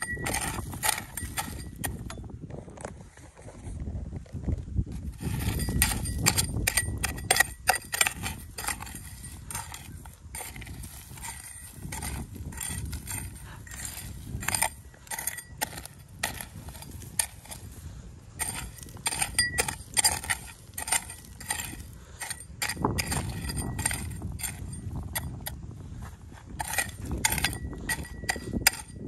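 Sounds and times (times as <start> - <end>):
loose dirt scattering: 0.0 - 2.2, 5.0 - 25.6, 26.3 - 29.0
metal hoe chopping dry soil: 0.0 - 2.4, 4.9 - 29.0
metal clinking on pebbles: 5.1 - 17.6, 18.4 - 25.4.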